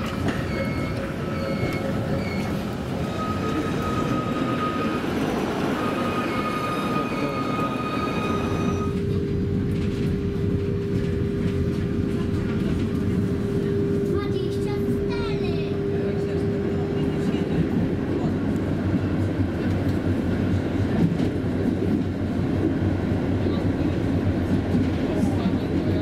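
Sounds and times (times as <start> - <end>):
tram rumble on rails: 0.0 - 26.0
wheels squealing: 0.1 - 9.0.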